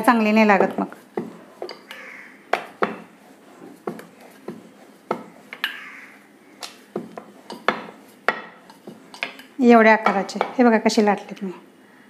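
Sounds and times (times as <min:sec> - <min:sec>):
rolling pin knocking on board: 0:01.2 - 0:01.4, 0:02.5 - 0:03.1, 0:03.8 - 0:05.8, 0:06.9 - 0:09.0.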